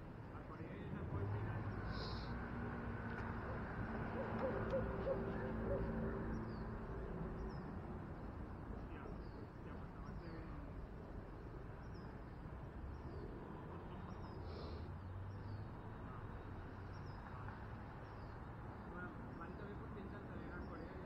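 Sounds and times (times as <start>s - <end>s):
wind and road noise: 0.0s - 21.0s.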